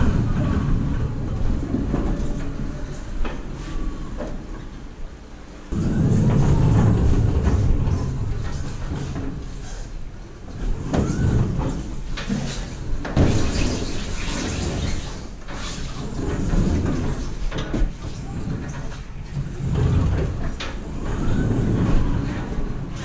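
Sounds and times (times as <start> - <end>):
wheels rattling on metal floor: 5.7 - 23.0.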